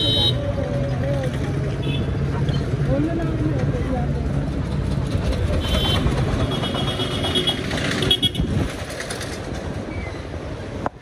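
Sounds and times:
vehicle horns honking: 0:00.0 - 0:00.5, 0:05.6 - 0:08.6
traffic rumble: 0:00.0 - 0:11.0.

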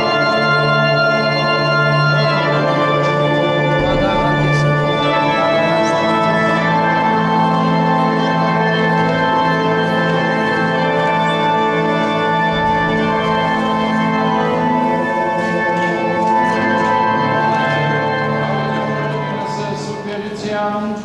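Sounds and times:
organ playing sustained chords: 0:00.0 - 0:21.0.

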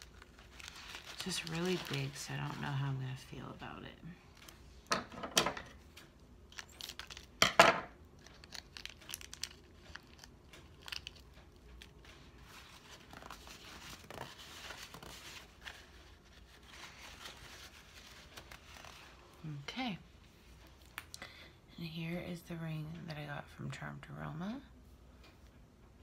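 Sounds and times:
plastic packet crinkling and tearing: 0:00.0 - 0:03.3, 0:06.5 - 0:07.4, 0:08.0 - 0:19.4
plastic rustling: 0:00.0 - 0:04.9, 0:08.0 - 0:19.4.

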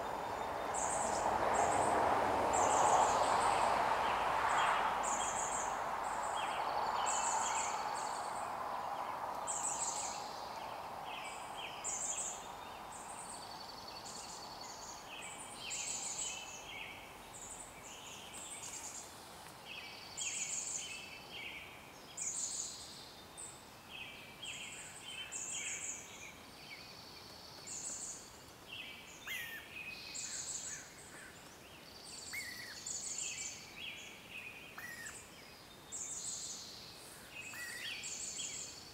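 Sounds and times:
birds chirping: 0:00.0 - 0:19.0
steady hiss: 0:00.0 - 0:21.5.

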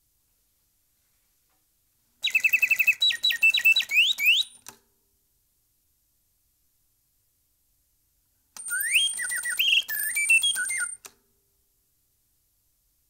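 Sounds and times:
mechanical bird whistling birdsong: 0:02.2 - 0:04.7, 0:08.6 - 0:11.1.

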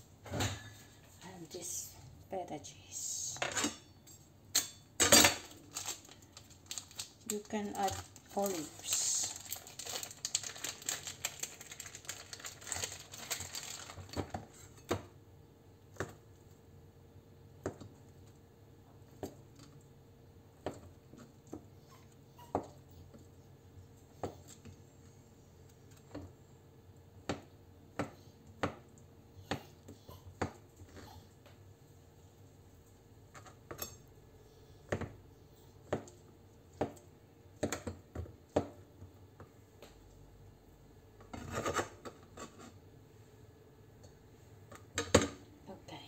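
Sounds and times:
plastic packet crinkling: 0:05.4 - 0:14.4.

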